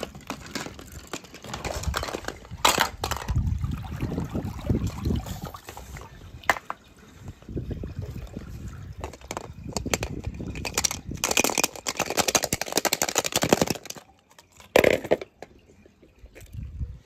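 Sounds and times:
small hard toys clattering: 0:00.0 - 0:03.4, 0:08.9 - 0:16.6.

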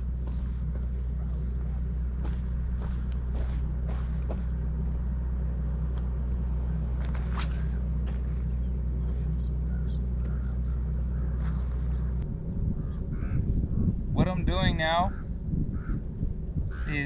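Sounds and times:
low engine rumble: 0:00.0 - 0:17.0.

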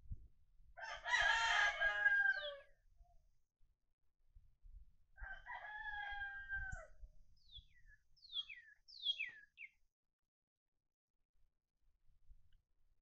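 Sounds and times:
rooster crowing: 0:00.8 - 0:02.7, 0:05.2 - 0:06.9
whistled bird calls: 0:07.5 - 0:09.7.

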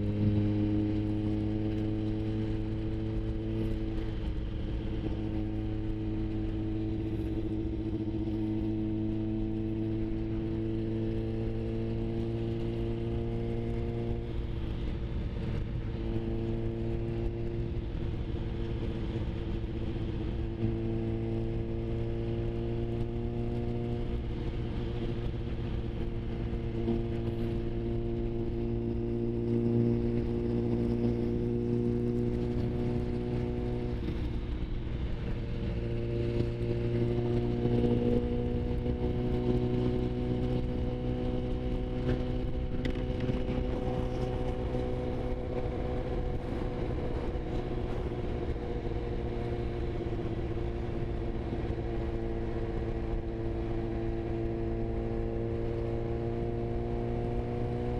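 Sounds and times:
motorcycle engine running: 0:00.0 - 0:57.9
wind noise on microphone: 0:23.0 - 0:54.0.

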